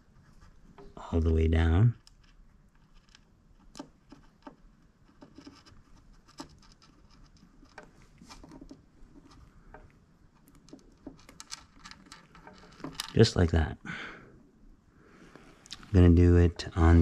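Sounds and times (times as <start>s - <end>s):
gloved hands handling small objects: 2.0s - 13.5s.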